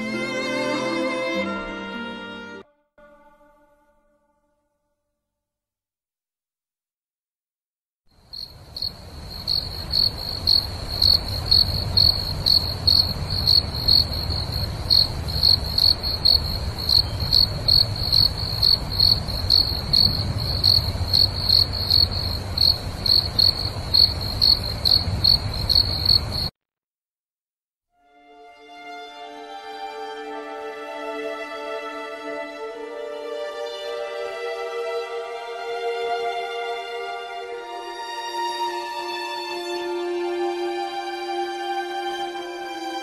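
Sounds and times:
cricket chirping: 0:08.1 - 0:26.5.

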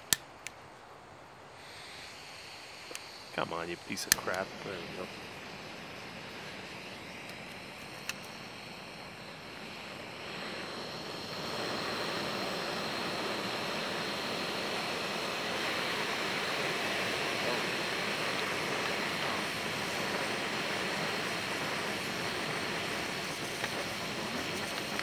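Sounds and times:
sharp click: 0:00.0 - 0:00.6, 0:04.0 - 0:04.5, 0:07.2 - 0:08.4
gas burner hissing: 0:00.0 - 0:25.0.

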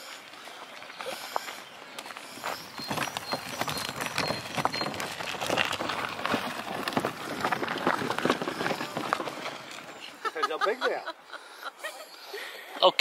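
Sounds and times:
trolley wheels rolling over gravel: 0:00.0 - 0:10.9.

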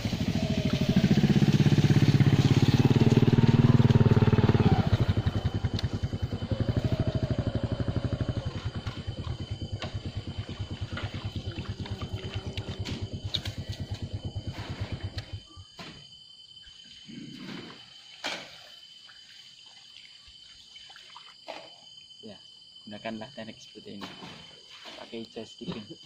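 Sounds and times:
small engine running: 0:00.0 - 0:15.5.

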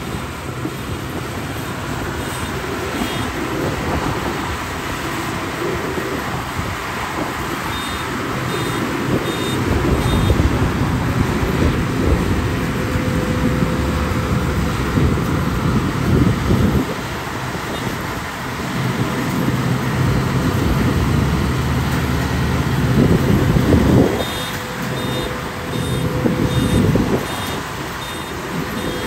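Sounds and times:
combine harvester running: 0:00.0 - 0:29.0.

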